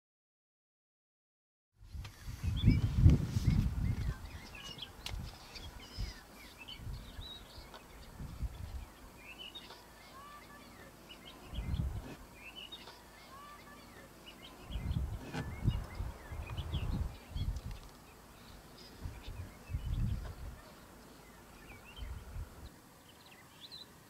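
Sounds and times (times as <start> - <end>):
small birds chirping: 2.0 - 24.0
low rumbles: 14.6 - 20.6.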